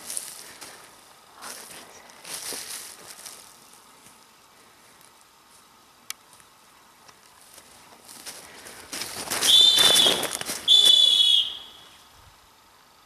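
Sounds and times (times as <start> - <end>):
dog whistle blasts: 9.4 - 12.0.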